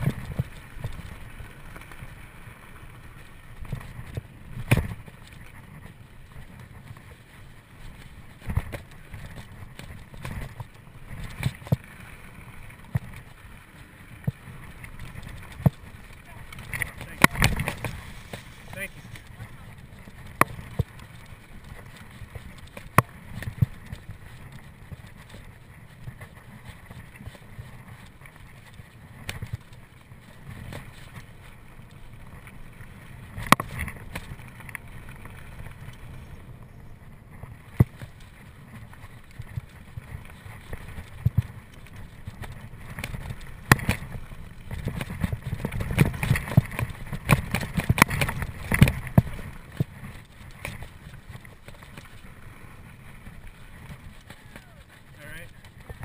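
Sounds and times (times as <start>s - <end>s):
bike rattles and knocks: 0.0s - 2.0s, 3.2s - 7.2s, 7.8s - 56.0s
low tyre rumble: 0.0s - 56.0s.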